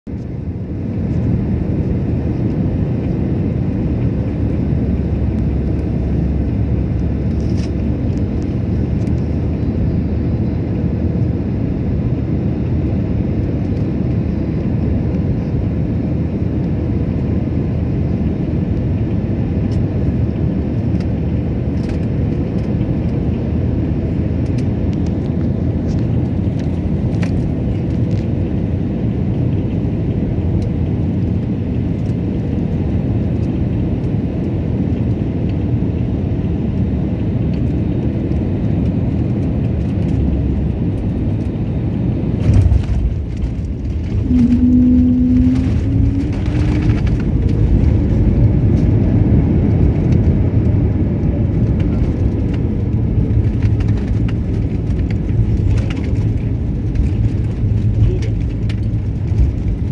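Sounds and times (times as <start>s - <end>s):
jet engines rumbling: 0.1s - 59.9s
rushing air: 41.9s - 49.0s.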